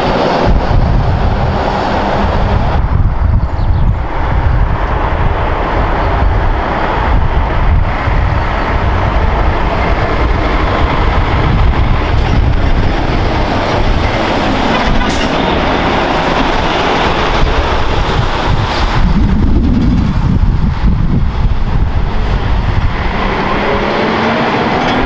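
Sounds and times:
truck driving past: 0:04.2 - 0:19.3, 0:21.3 - 0:25.0.

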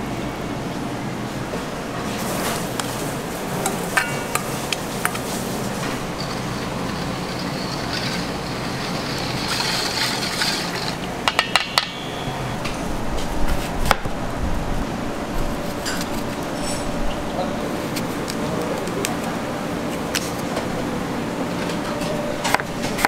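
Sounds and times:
steady kitchen hum: 0:00.0 - 0:23.0
whisk scraping in steel bowl: 0:04.4 - 0:11.1.

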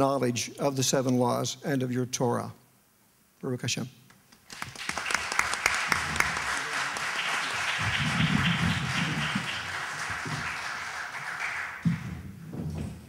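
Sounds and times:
audience applauding: 0:04.4 - 0:12.2.

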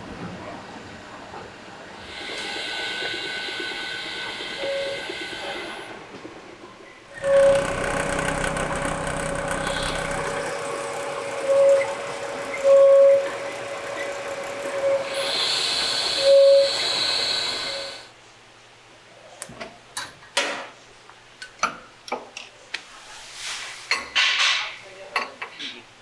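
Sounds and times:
short loud machine tone: 0:07.2 - 0:13.4
dough mixer whining: 0:07.2 - 0:16.0
dough-sheeting rollers running: 0:07.2 - 0:18.0.

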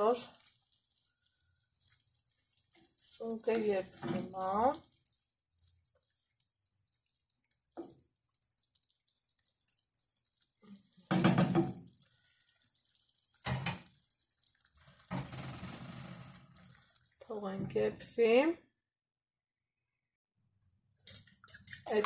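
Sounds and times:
mushrooms sizzling in a frying pan: 0:01.8 - 0:05.0.

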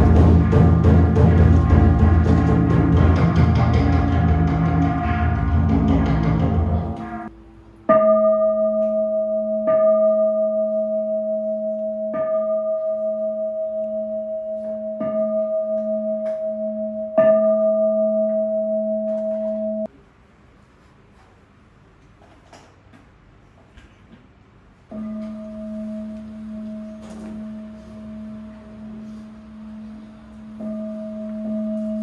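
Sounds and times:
bowl bell ringing: 0:07.9 - 0:19.9, 0:24.9 - 0:32.0.

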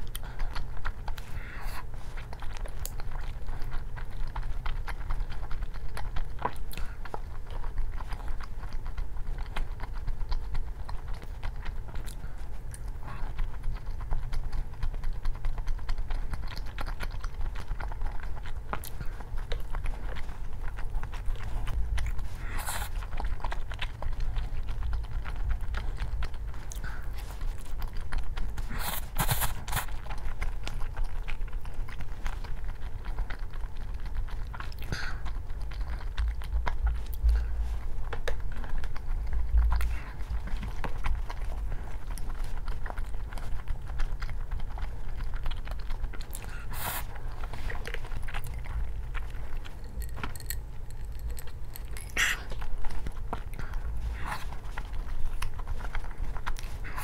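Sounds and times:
close chewing and biting: 0:00.0 - 0:57.0
crunching and clattering: 0:00.0 - 0:57.0
steady low hum: 0:00.0 - 0:57.0.

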